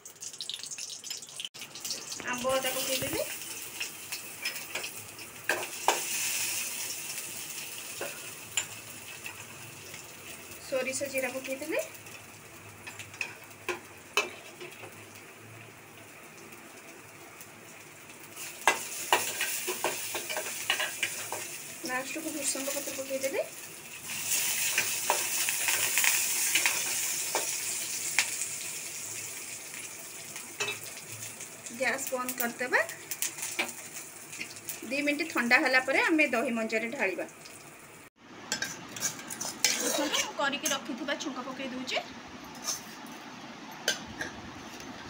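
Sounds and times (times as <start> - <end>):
spices sizzling in hot oil: 0.0 - 43.0.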